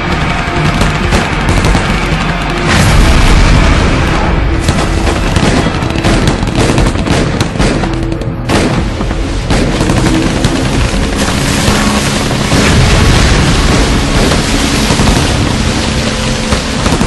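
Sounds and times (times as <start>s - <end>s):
gunshots: 0.0s - 17.0s
tense background music: 0.0s - 17.0s.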